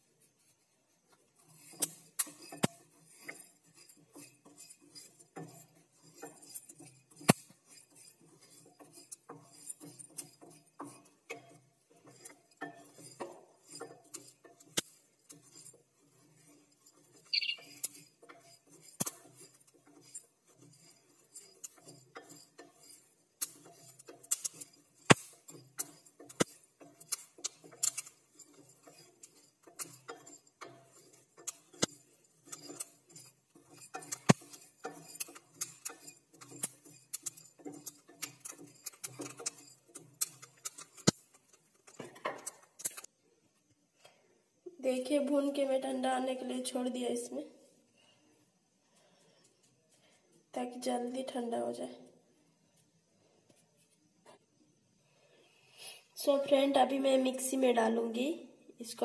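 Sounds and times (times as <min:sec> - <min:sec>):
spatula scraping metal pan: 0:01.3 - 0:43.1
dry seeds rattling: 0:12.5 - 0:43.1.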